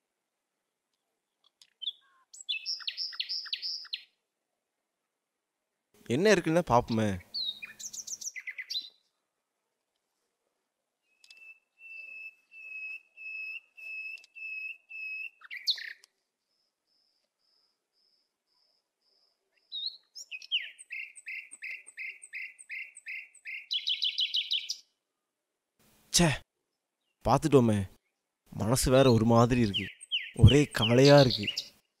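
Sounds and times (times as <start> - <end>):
bird whistled calls and trill: 1.8 - 4.1, 7.3 - 9.0, 11.1 - 16.0, 19.7 - 24.9, 29.7 - 31.8.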